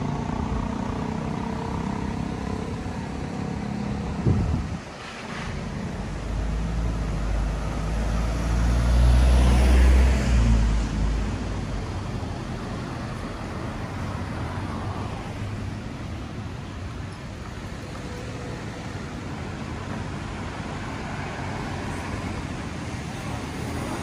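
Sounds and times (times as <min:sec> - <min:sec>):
vehicle driving past: 0:00.0 - 0:11.5
street traffic noise: 0:00.0 - 0:24.0.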